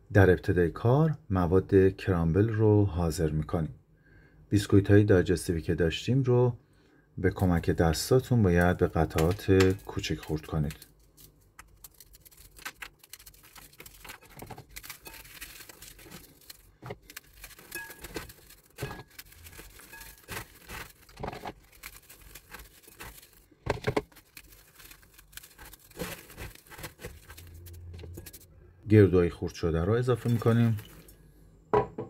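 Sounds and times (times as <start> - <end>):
biscuits snapping and crunching: 8.6 - 28.4.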